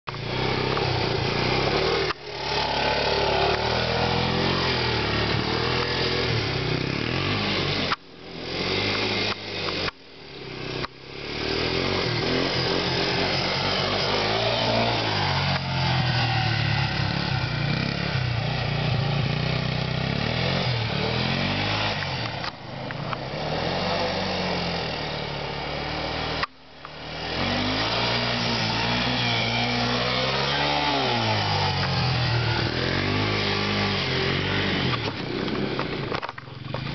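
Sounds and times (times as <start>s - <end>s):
three-wheeler engine revving: 0.0s - 36.9s.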